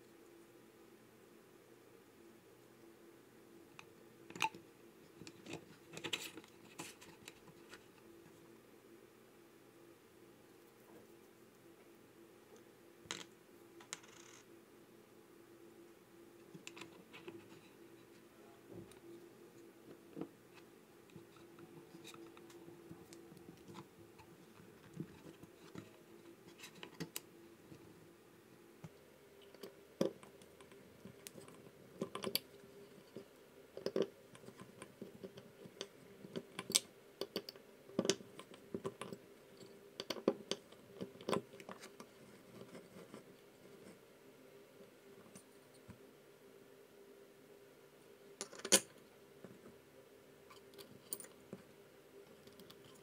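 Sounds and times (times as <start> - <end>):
metal parts clicking and tapping: 33.8 - 34.6.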